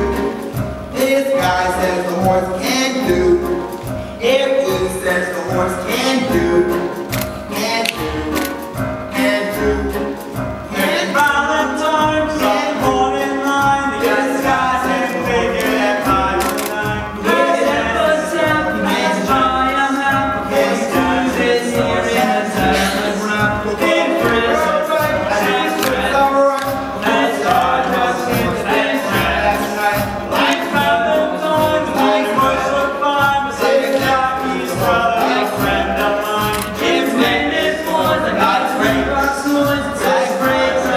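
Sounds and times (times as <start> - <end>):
instrumental accompaniment: 0.0 - 40.9
male voices singing: 0.0 - 40.9.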